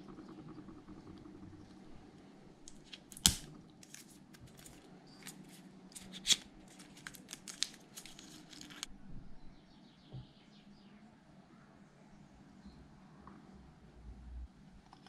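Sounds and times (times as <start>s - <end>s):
packaging clicks and rustles: 2.7s - 8.9s.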